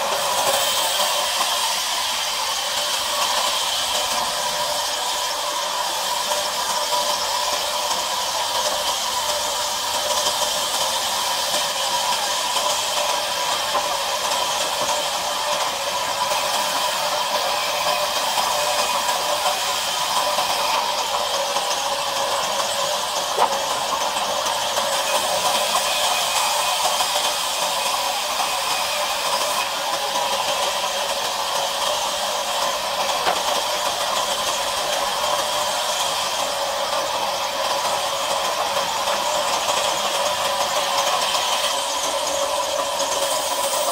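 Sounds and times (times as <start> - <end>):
band saw cutting timber: 0.0 - 43.9.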